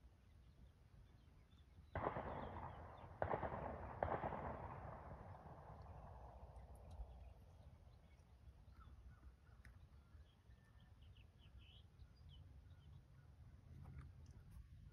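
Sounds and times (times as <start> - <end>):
faint bird chirps: 6.7 - 14.9.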